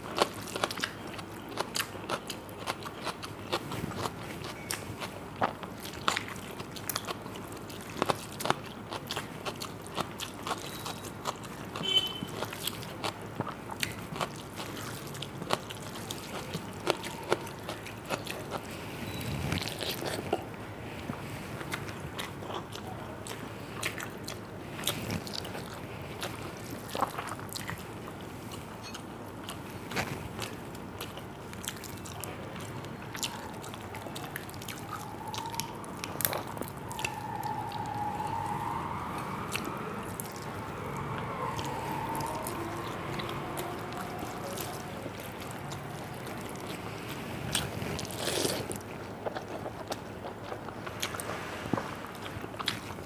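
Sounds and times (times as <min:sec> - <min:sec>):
person crunching and chewing: 0:00.0 - 0:18.7, 0:21.6 - 0:37.1, 0:44.0 - 0:53.0.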